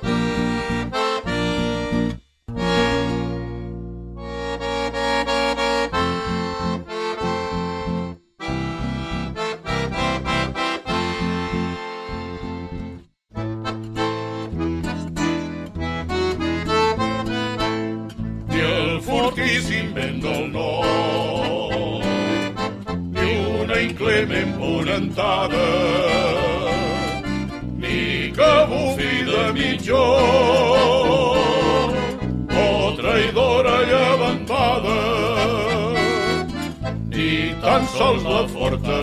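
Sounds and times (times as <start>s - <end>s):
accordion: 0.0s - 39.0s
male vocal group singing: 18.5s - 22.6s, 23.2s - 36.4s, 37.1s - 39.0s.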